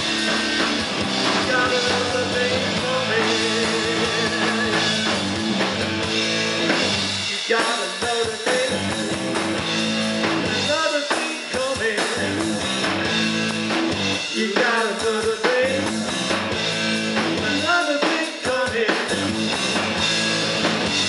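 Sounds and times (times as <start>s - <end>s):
man singing: 0.0s - 5.2s, 7.3s - 9.0s, 10.5s - 12.6s, 14.3s - 16.1s, 17.3s - 19.6s
bass guitar: 0.0s - 21.0s
distorted electric guitar: 0.0s - 21.0s
drum kit: 0.0s - 21.0s.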